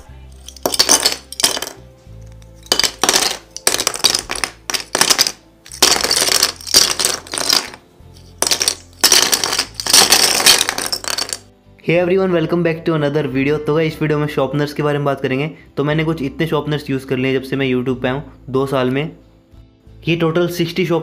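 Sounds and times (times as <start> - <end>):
pencil sharpeners clattering onto wood: 2.7 - 7.8, 8.4 - 11.4.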